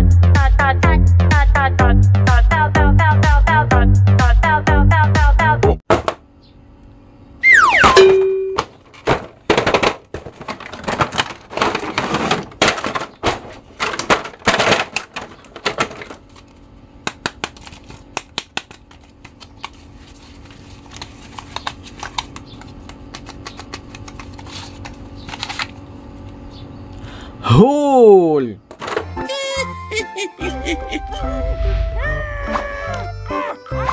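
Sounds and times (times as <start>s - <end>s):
steady tone: 31.0s - 33.3s
falling swoosh sound effect: 31.3s - 33.0s.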